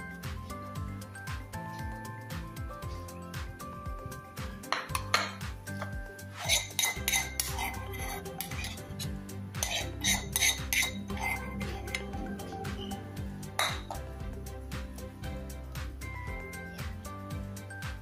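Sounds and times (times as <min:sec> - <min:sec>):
background music: 0:00.0 - 0:18.0
cutlery scraping a ceramic plate: 0:04.8 - 0:12.1, 0:13.6 - 0:14.0.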